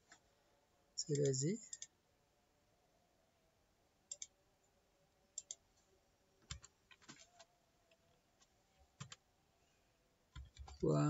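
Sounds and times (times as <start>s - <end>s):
faint computer mouse clicks: 4.1s - 4.3s, 5.4s - 5.6s.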